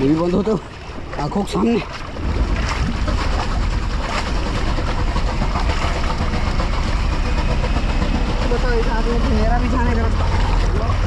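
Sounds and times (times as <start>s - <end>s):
motorcycle engine running: 3.0s - 11.0s.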